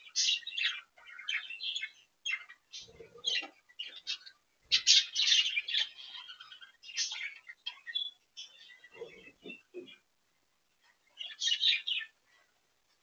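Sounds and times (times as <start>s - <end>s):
budgerigars chattering: 0.0s - 10.0s.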